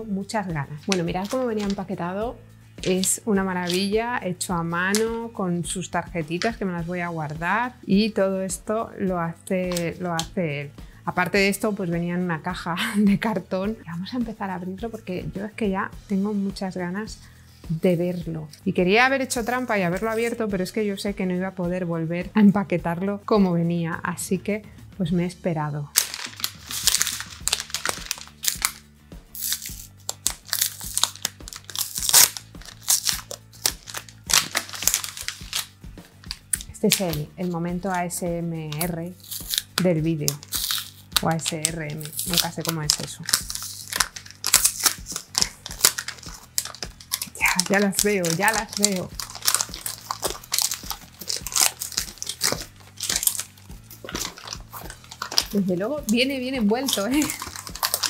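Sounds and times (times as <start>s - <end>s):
soft background music: 0.0s - 58.0s
paper wrapping crinkling: 0.8s - 2.0s, 2.8s - 3.9s, 26.0s - 37.2s, 38.8s - 58.0s.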